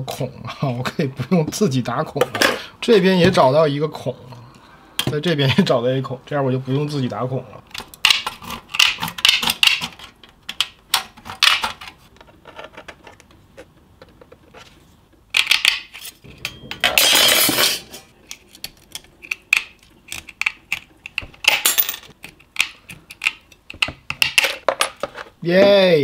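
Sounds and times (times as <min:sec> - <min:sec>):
steel sheet clattering: 0:16.0 - 0:18.1.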